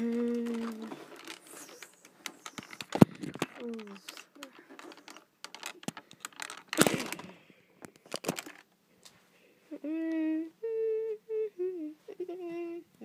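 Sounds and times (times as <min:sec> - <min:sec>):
child humming: 0:00.0 - 0:02.8, 0:09.7 - 0:12.9
phone handling noise: 0:00.4 - 0:08.6.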